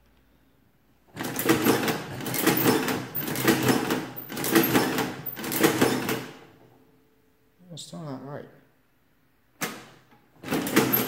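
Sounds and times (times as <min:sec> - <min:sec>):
adding machine crank clatter: 0:01.2 - 0:06.5, 0:10.4 - 0:11.0.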